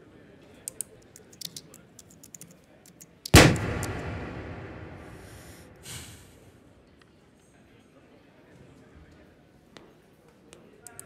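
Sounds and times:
loud boom-like impact: 0:03.4 - 0:06.3
short hiss: 0:04.7 - 0:06.5.

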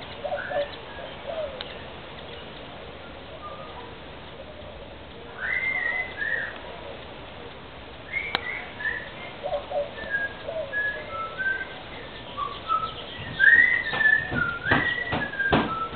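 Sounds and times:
sharp click: 0:08.3 - 0:08.5
person whistling: 0:10.0 - 0:11.7, 0:12.4 - 0:15.9.

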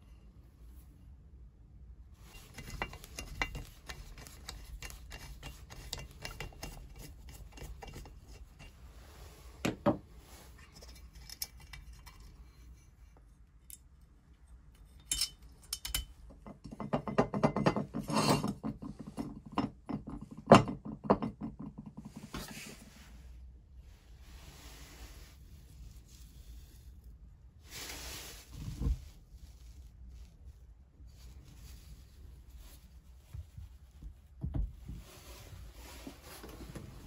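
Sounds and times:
nut driver clicking and scraping metal: 0:02.4 - 0:08.4, 0:10.6 - 0:12.4, 0:14.8 - 0:18.7.

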